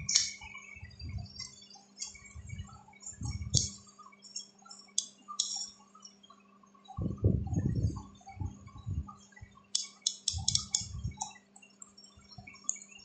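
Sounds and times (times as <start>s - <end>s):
computer mouse clicks: 0.0s - 0.5s, 3.0s - 5.8s, 9.7s - 11.9s
low electrical hum: 0.0s - 13.0s.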